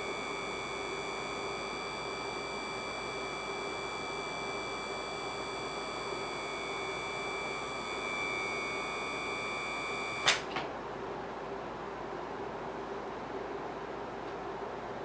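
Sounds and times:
high-pitched electronic whine: 0:00.0 - 0:10.4
sharp click: 0:10.2 - 0:10.6.

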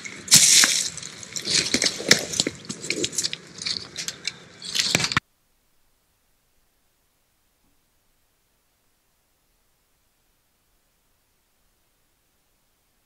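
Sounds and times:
close-up rustling and crackling: 0:00.0 - 0:05.2.

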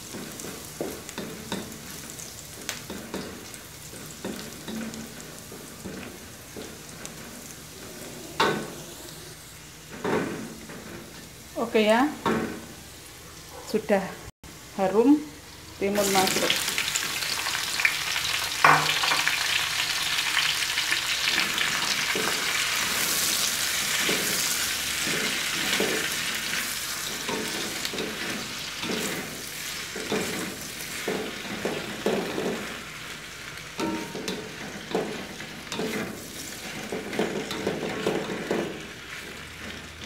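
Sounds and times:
food sizzling in a wok: 0:00.0 - 0:13.5, 0:14.5 - 0:40.0
spatula scraping a wok: 0:21.3 - 0:40.0.

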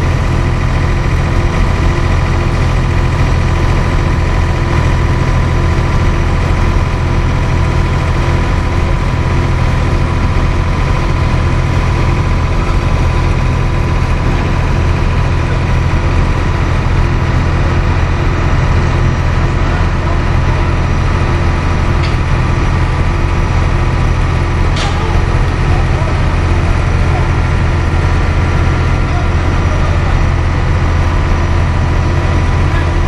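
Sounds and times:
diesel engine droning: 0:00.0 - 0:33.0.

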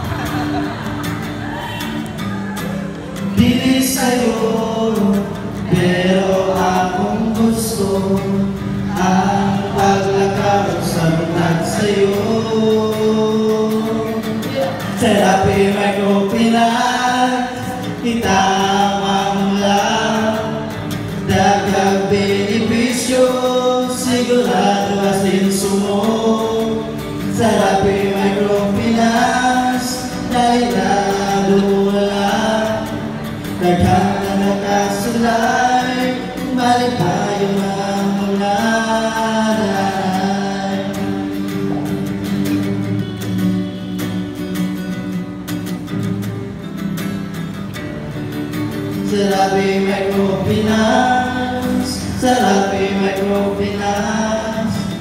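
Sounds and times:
acoustic guitar: 0:00.0 - 0:55.0
group singing: 0:03.0 - 0:41.8, 0:49.0 - 0:55.0.

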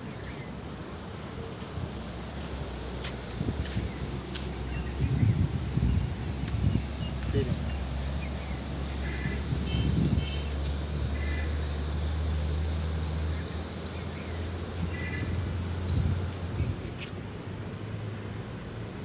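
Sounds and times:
small birds chirping: 0:01.6 - 0:18.3.

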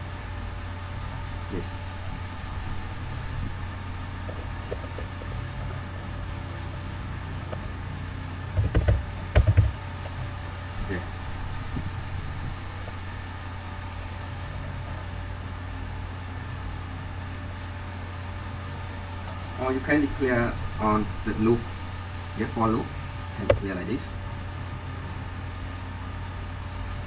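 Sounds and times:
low background hum: 0:00.0 - 0:27.0
computer keyboard typing: 0:08.6 - 0:09.8.

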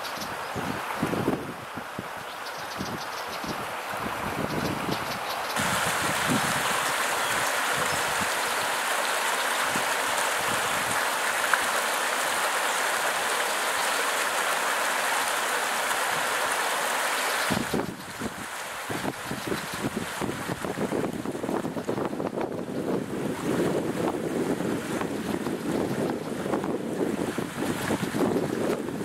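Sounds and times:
wind buffeting microphone: 0:00.2 - 0:08.7, 0:17.5 - 0:29.0
water rushing over stones: 0:03.6 - 0:29.0.

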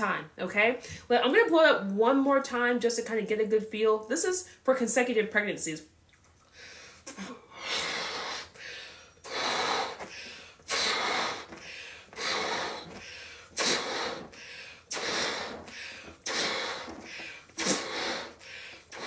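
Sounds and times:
quick breaths in: 0:06.5 - 0:19.0
puffs into balloon: 0:07.6 - 0:19.0.

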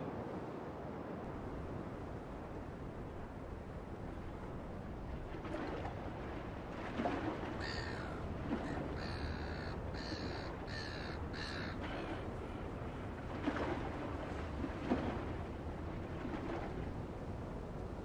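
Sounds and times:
bird calling: 0:07.6 - 0:12.3.

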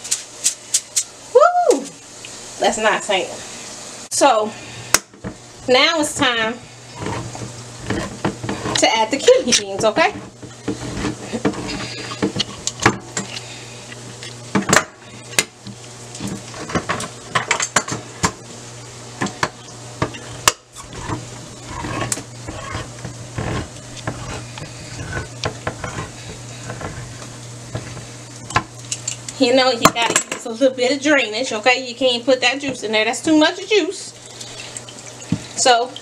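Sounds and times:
steady low hum: 0:00.0 - 0:36.0
can opener clicking and scraping: 0:20.0 - 0:29.4.

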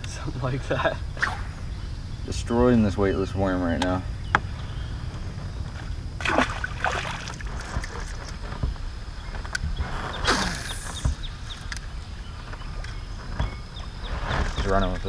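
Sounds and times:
low wind rumble: 0:00.0 - 0:15.0
fish splashing into water: 0:06.2 - 0:07.7.

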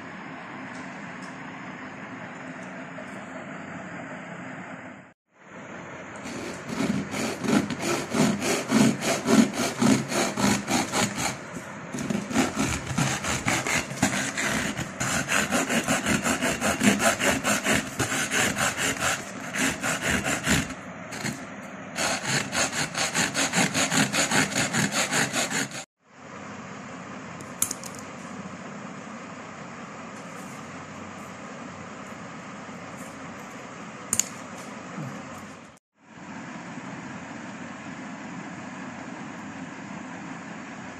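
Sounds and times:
steady hum: 0:00.0 - 0:40.9
saw rasping on metal can: 0:06.2 - 0:25.9.

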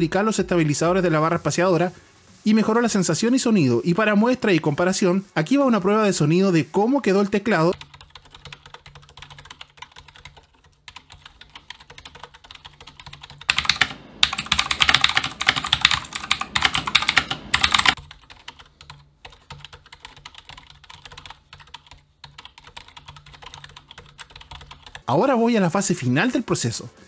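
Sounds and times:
quiet keyboard typing clatter: 0:07.4 - 0:25.1
loud clicky keyboard typing: 0:07.6 - 0:25.0.

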